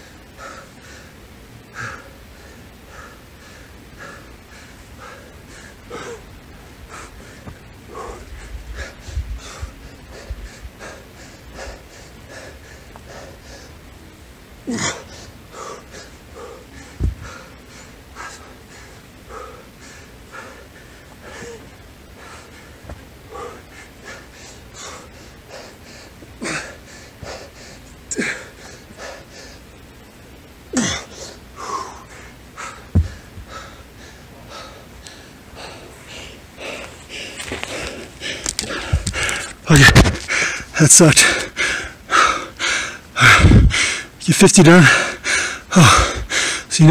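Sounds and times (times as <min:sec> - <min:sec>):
man panting and wheezing: 0:00.0 - 0:46.9
dull thumps: 0:17.0 - 0:17.3, 0:32.9 - 0:33.5.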